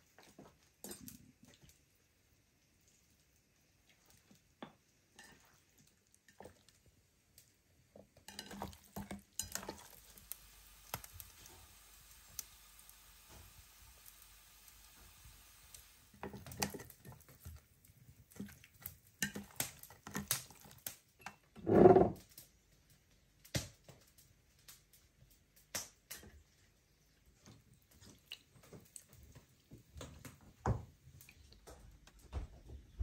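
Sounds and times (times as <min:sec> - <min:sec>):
dishes and utensils tapping: 0:08.1 - 0:10.0, 0:19.2 - 0:20.4.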